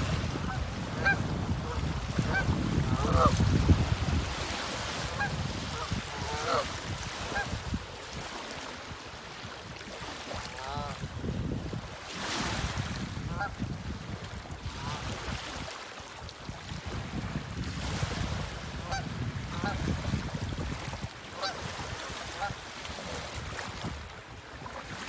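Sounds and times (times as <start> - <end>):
wind rumbling on microphone: 0.0 - 8.3, 9.4 - 25.0
waterfowl calling: 0.4 - 3.4, 5.0 - 7.6, 10.5 - 11.0, 13.3 - 13.6, 18.8 - 19.8, 21.3 - 22.6.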